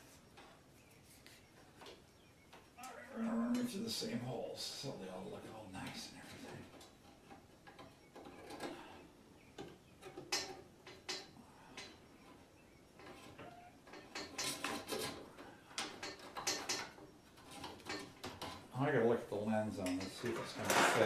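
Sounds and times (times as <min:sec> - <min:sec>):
wire rustling: 0:05.8 - 0:18.8.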